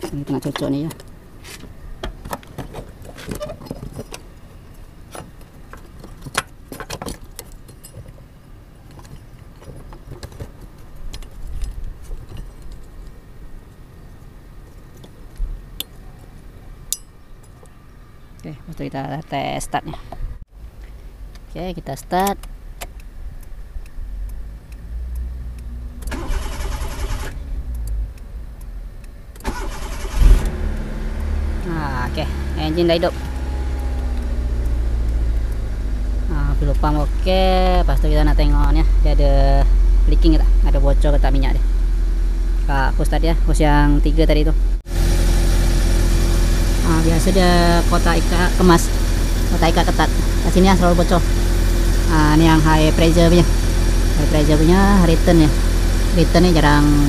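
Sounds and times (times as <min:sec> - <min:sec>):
car engine starting: 0:24.2 - 0:57.0
car starter cranking: 0:26.0 - 0:27.9, 0:29.3 - 0:31.7.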